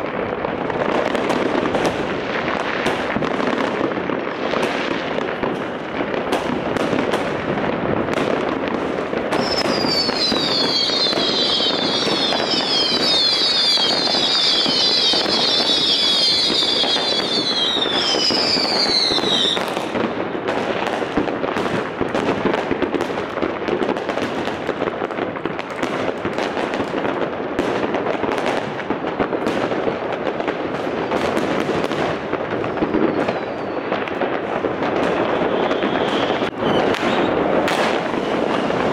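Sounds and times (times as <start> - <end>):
fireworks crackling and popping: 0.0 - 38.9
high falling whistle: 35.5 - 37.4.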